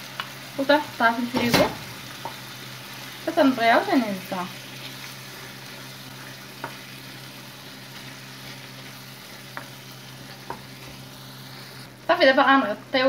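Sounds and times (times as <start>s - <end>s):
sauce sizzling in frying pan: 0.0s - 13.0s
wooden spoon stirring: 4.6s - 11.8s.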